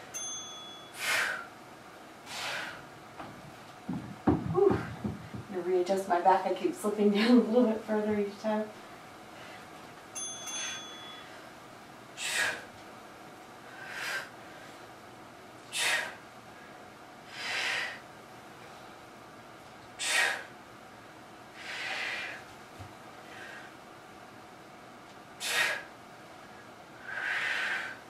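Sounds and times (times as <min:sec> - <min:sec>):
ringing ding: 0:00.0 - 0:01.0, 0:10.2 - 0:11.3
woman breathing hard: 0:00.9 - 0:01.6, 0:02.2 - 0:02.9, 0:12.2 - 0:12.8, 0:13.6 - 0:14.9, 0:15.7 - 0:18.0, 0:20.0 - 0:20.6, 0:21.6 - 0:22.5, 0:23.2 - 0:23.8, 0:25.4 - 0:25.9, 0:27.0 - 0:28.0.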